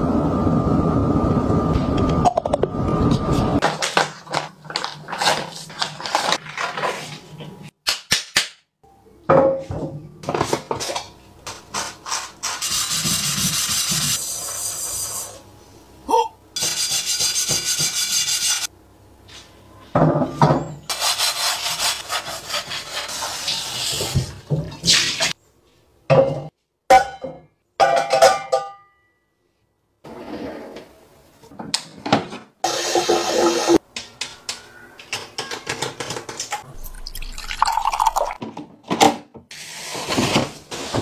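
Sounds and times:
plastic packaging rustling: 0:03.6 - 0:07.3
sponge scrubbing a saucepan: 0:11.7 - 0:15.4, 0:16.6 - 0:18.7, 0:20.9 - 0:25.4
tap water running: 0:32.6 - 0:33.8, 0:36.8 - 0:38.4.

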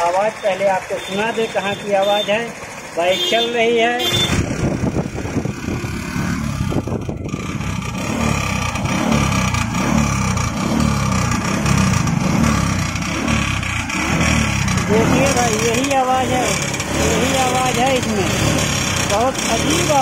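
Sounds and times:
motorcycle engine running: 0:00.0 - 0:20.0
abnormal mechanical noise: 0:04.2 - 0:20.0
wind on microphone: 0:04.3 - 0:08.0.

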